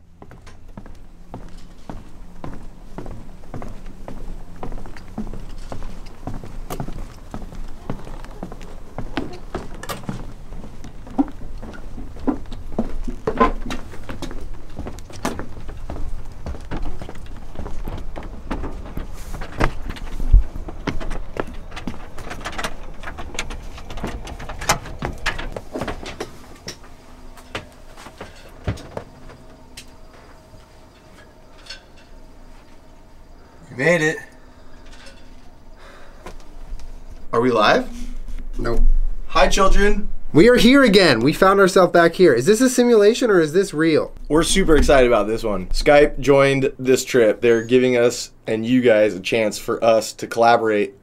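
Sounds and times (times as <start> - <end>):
footsteps on wooden dock: 0.0 - 30.5
faint steady hum: 0.0 - 51.0.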